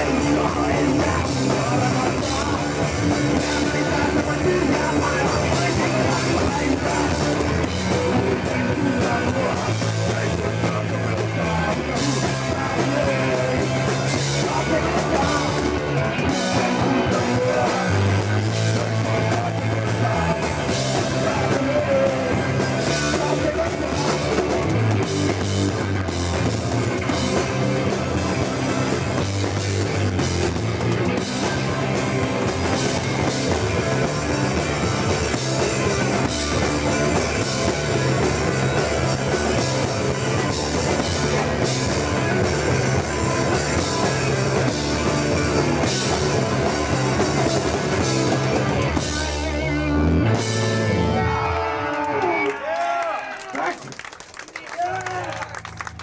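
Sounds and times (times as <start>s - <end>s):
fast pounding drums: 0.0s - 50.9s
punk band playing live: 0.0s - 56.0s.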